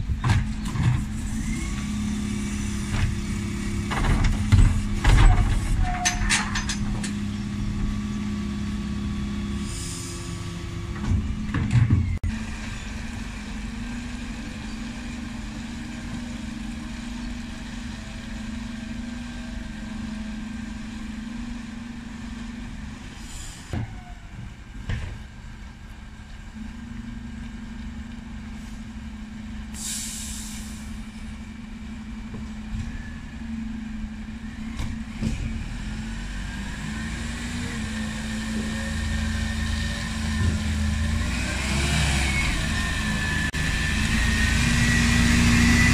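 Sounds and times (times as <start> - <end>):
diesel lorry engine running: 0.0 - 45.9
air brake hiss: 9.6 - 10.5, 23.2 - 23.8, 29.7 - 31.0.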